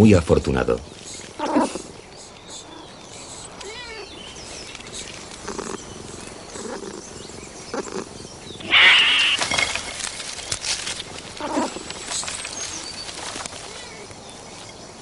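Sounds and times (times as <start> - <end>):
cat hissing: 1.4 - 4.2, 7.8 - 9.7
rustling and clicks in branches: 3.6 - 6.8, 8.6 - 14.8
cat growling: 5.4 - 9.6.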